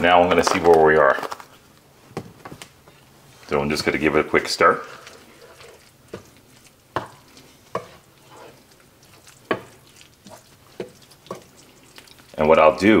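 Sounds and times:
spoon stirring thick chili: 0.0s - 13.0s.

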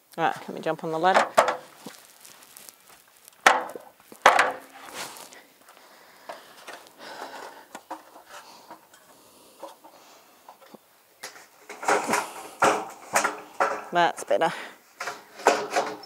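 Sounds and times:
feet on ladder rungs: 0.3s - 16.0s
stepladder knocks: 1.0s - 1.7s, 3.4s - 4.8s, 15.0s - 16.0s.

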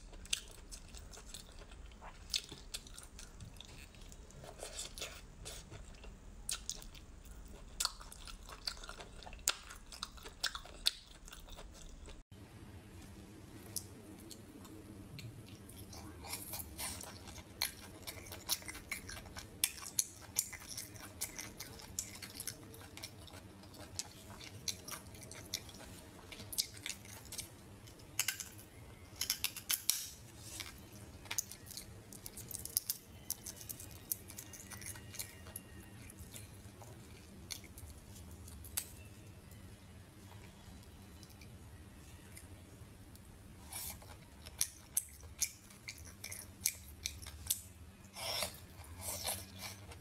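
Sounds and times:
low steady hum: 0.0s - 50.0s
seafood clicking and squishing: 15.2s - 39.0s.

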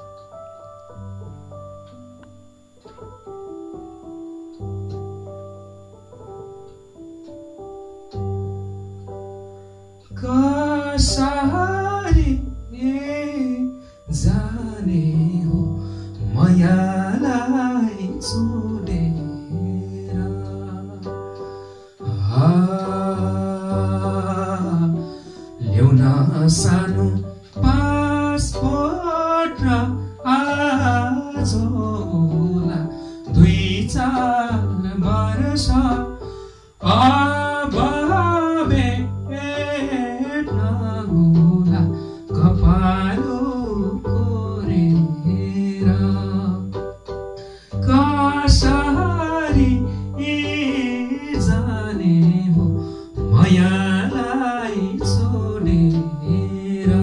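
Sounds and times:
electronic keyboard chords and bass: 0.0s - 57.0s
man singing folk song: 10.2s - 21.2s, 22.1s - 36.2s, 36.8s - 46.9s, 47.8s - 57.0s.

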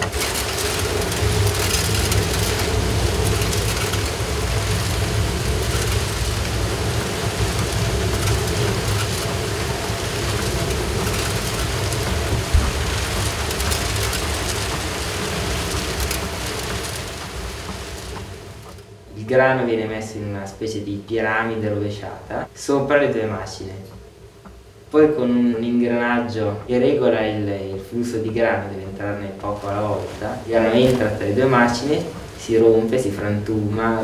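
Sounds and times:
millstones rumbling: 0.0s - 18.8s, 27.8s - 34.0s
wooden works rattling and clicking: 0.0s - 18.9s.

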